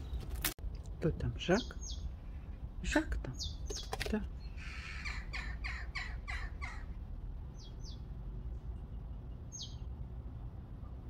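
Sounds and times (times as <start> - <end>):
bird high chirps: 1.5 - 2.5, 3.4 - 6.9, 7.5 - 8.1, 8.8 - 9.9
jackdaw harsh calls: 3.4 - 7.0.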